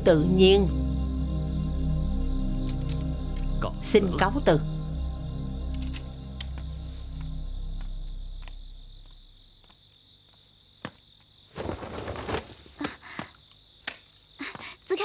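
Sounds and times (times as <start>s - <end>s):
low music: 0.0s - 9.6s
crickets chirring: 0.0s - 15.0s
short rustling burst: 11.5s - 12.8s.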